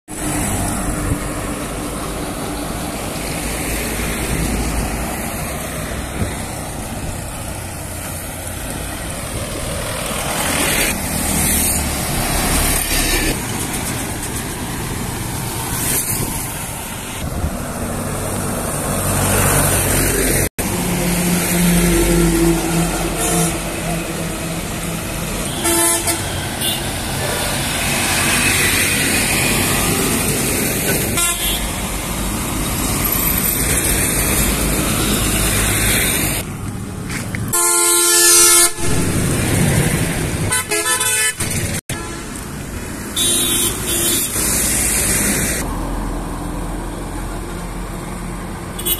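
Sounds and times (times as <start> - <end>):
trucks driving past: 0.1 - 48.9
vehicle horns honking: 21.9 - 24.1, 25.4 - 27.0, 30.9 - 31.8, 37.5 - 39.2, 40.5 - 42.4, 43.2 - 44.4.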